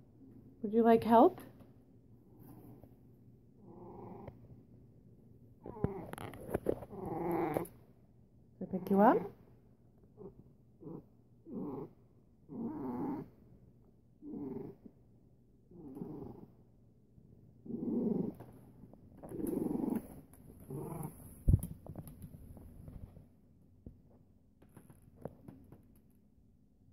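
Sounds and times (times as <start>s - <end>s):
cat purring: 1.0s - 8.0s, 8.7s - 23.2s.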